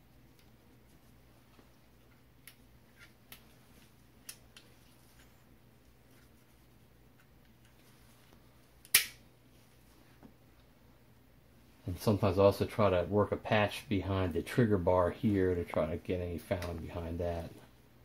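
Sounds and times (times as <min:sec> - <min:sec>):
sharp loud click: 0:08.9 - 0:09.2.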